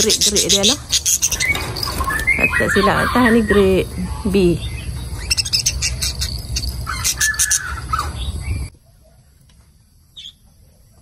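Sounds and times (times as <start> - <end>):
budgerigars chirping and chattering: 0.0 - 8.7
low rumble: 0.8 - 8.7.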